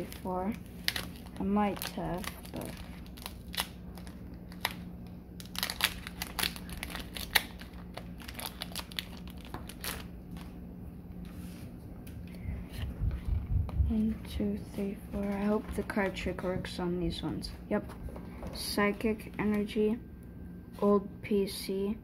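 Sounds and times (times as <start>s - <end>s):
foil wrapper crinkling: 0.0s - 10.6s.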